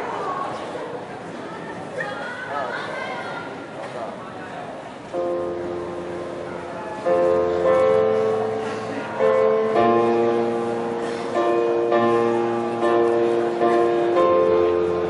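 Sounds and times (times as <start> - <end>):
keyboard playing piano chords: 5.2 - 15.0.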